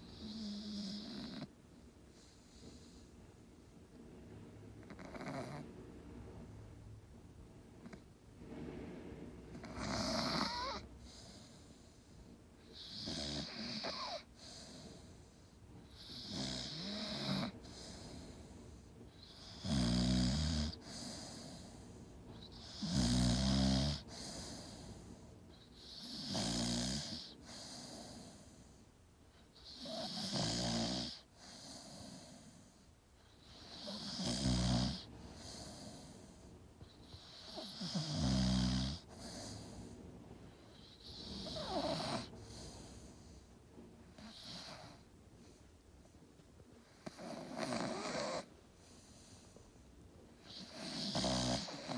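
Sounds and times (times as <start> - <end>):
dog snoring: 0.0 - 1.5, 2.1 - 3.0, 4.8 - 5.7, 9.5 - 12.0, 12.6 - 28.7, 29.6 - 39.9, 40.5 - 43.4, 44.1 - 45.6, 46.8 - 49.5, 50.4 - 51.9.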